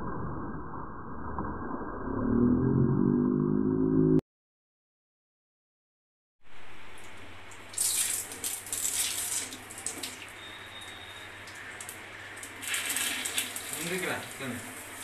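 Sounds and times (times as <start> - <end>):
water splashing in a wash basin: 6.5 - 15.0.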